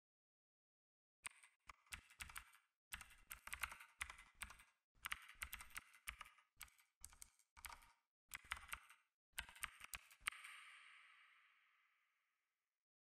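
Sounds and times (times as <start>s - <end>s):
keyboard typing clicks: 1.2s - 10.5s.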